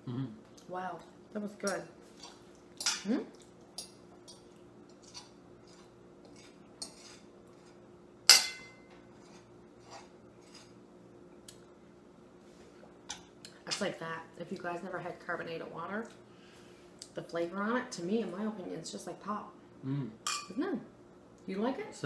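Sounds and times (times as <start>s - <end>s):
fork scraping on a plate: 4.9s - 7.8s, 9.0s - 10.8s.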